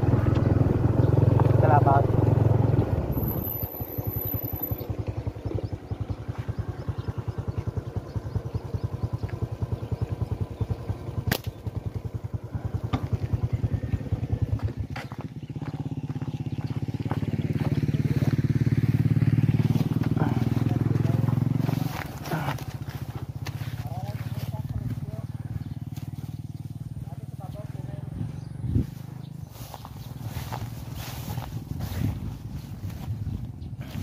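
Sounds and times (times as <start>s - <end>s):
small engine running: 0.0s - 34.0s
sharp click: 11.3s - 11.6s.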